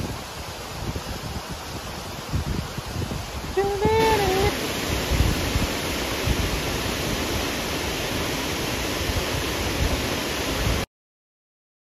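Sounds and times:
flowing water rushing: 0:00.0 - 0:10.9.

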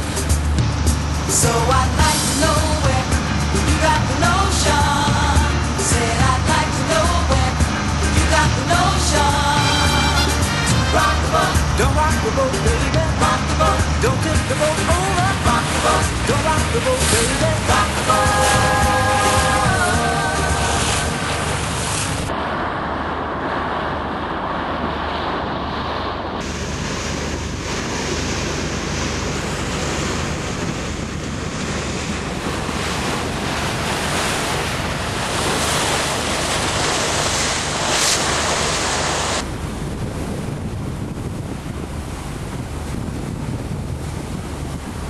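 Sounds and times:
sea water rushing along boat bow: 0:00.0 - 0:45.0
wind buffeting microphone: 0:10.4 - 0:45.0.

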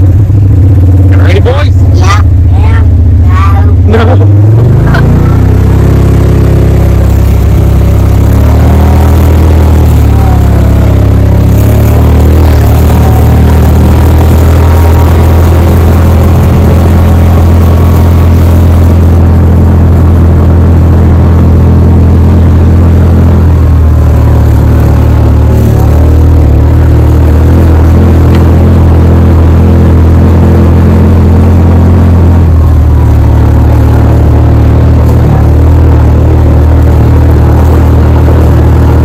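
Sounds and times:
vehicle engine droning: 0:00.0 - 0:39.0.

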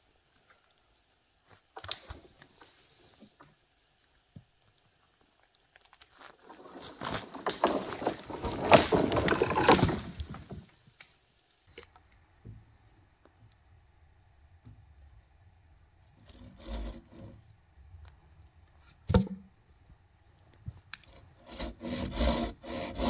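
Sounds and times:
leaves rustling and crackling: 0:05.8 - 0:11.7.

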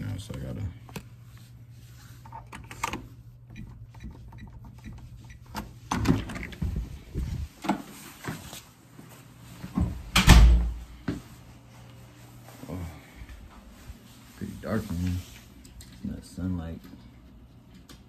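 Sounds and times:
steady low hum: 0:00.0 - 0:18.0
door shutting with heavy thud: 0:09.8 - 0:10.8.

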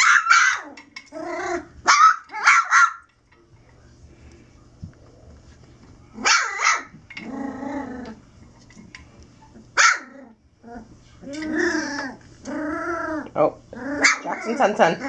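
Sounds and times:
puppy barking: 0:00.0 - 0:00.8, 0:01.8 - 0:03.1, 0:06.2 - 0:07.0, 0:09.8 - 0:10.1, 0:14.0 - 0:14.8
puppy growling: 0:00.4 - 0:02.4, 0:06.1 - 0:08.3, 0:09.5 - 0:15.0.

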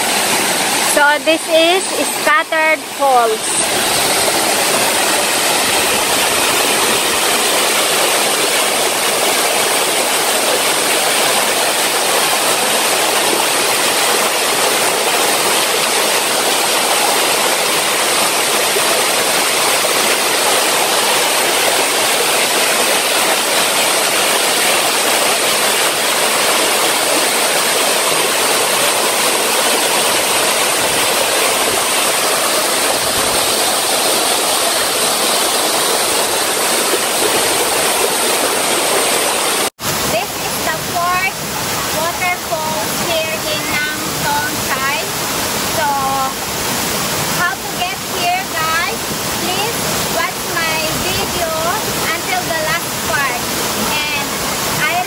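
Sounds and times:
waterfall rushing: 0:00.0 - 0:55.0.

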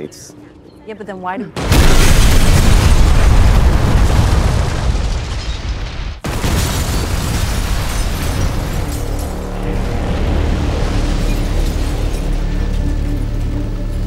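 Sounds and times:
building burning explosion: 0:01.6 - 0:12.7
explosion rumble: 0:01.6 - 0:12.8.

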